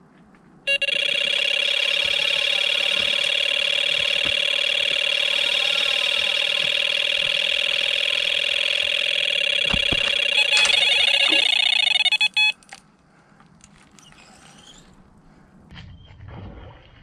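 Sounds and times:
bite alarm continuous tone: 0:00.7 - 0:12.8.

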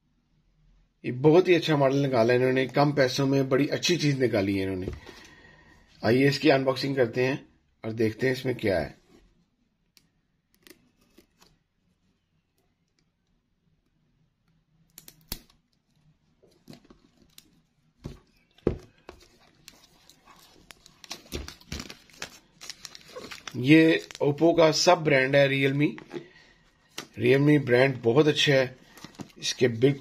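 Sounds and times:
plastic shrink-wrap crackling: 0:19.3 - 0:24.6.

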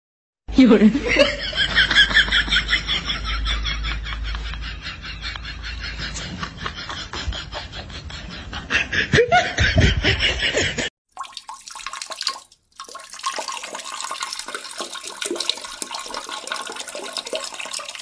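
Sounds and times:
water rushing in toilet: 0:11.1 - 0:18.0.

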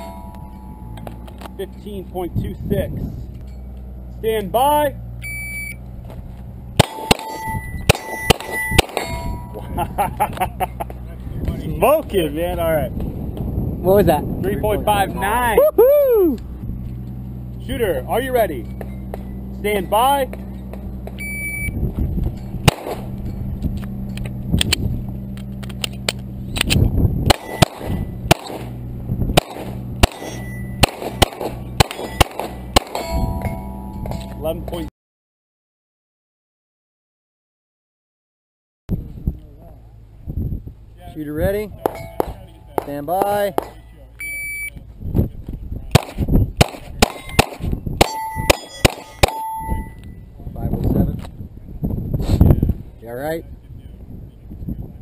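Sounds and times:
steel target plate ringing: 0:00.0 - 0:01.9, 0:06.8 - 0:09.8, 0:27.3 - 0:28.8, 0:29.4 - 0:34.4, 0:41.9 - 0:44.0, 0:47.1 - 0:50.3
shot timer beep: 0:05.2 - 0:05.8, 0:06.8 - 0:09.5, 0:21.2 - 0:21.8, 0:44.2 - 0:44.8
pistol shots: 0:06.8 - 0:09.2, 0:22.6 - 0:23.2, 0:26.6 - 0:28.8, 0:29.4 - 0:33.2, 0:41.8 - 0:43.8, 0:45.9 - 0:49.8.

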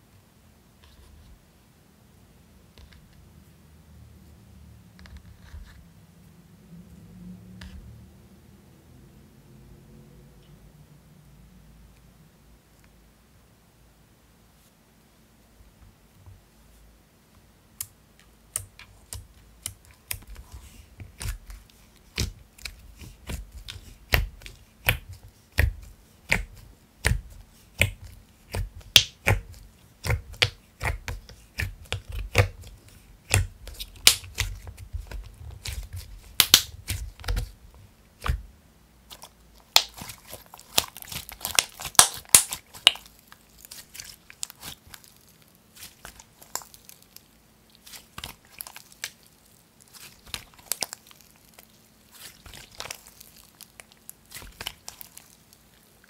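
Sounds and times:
sticky slime clicks and pops: 0:33.3 - 0:35.8, 0:36.4 - 0:37.5, 0:39.7 - 0:43.1.

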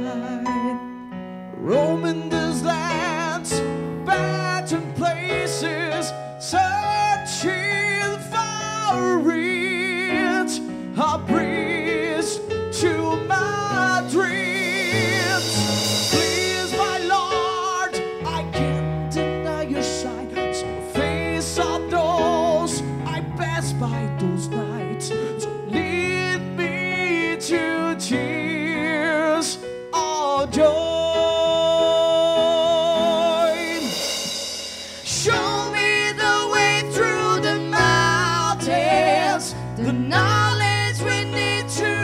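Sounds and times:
keyboards: 0:00.0 - 0:42.0
sung vocals with vibrato: 0:00.0 - 0:42.0
drums: 0:11.3 - 0:23.1, 0:30.6 - 0:42.0
cymbal swell: 0:14.7 - 0:17.4, 0:33.4 - 0:36.7.

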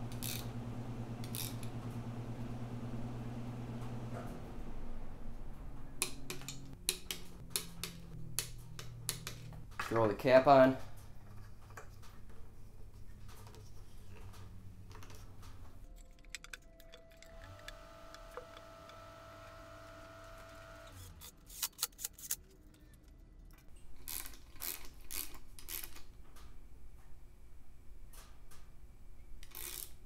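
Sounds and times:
ratchet clicking: 0:00.1 - 0:00.5, 0:01.2 - 0:01.7, 0:29.4 - 0:30.0.

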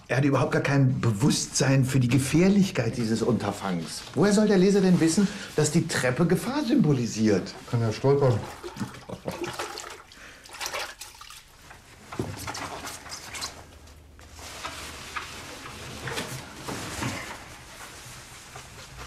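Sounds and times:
watery splashing: 0:06.8 - 0:13.8.

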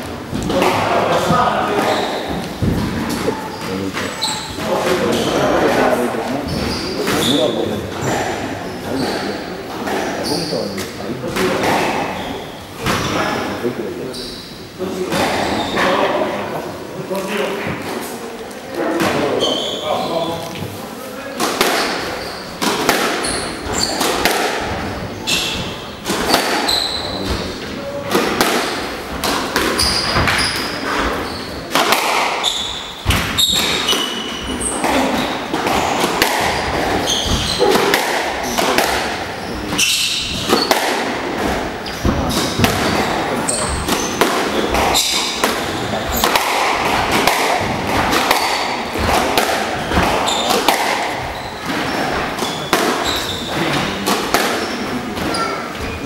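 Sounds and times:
squash ball knocks and thuds: 0:00.0 - 0:05.9, 0:21.4 - 0:55.9
shoes squeaking on hardwood floor: 0:00.0 - 0:16.2, 0:19.1 - 0:28.2, 0:29.2 - 0:56.0.

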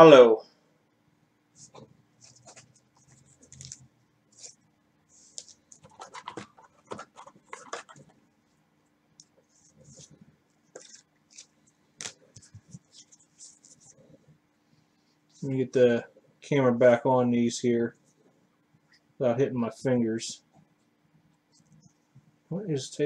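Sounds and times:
trading cards rustling and clicking: 0:01.6 - 0:04.6, 0:05.2 - 0:08.2, 0:09.2 - 0:14.0.

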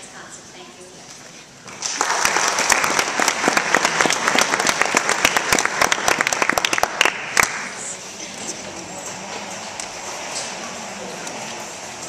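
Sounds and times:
audience applauding: 0:01.7 - 0:07.9.

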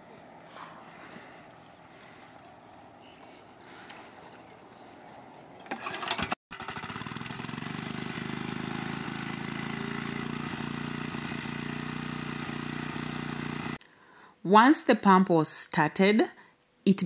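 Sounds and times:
small water pump engine running: 0:05.6 - 0:13.8.

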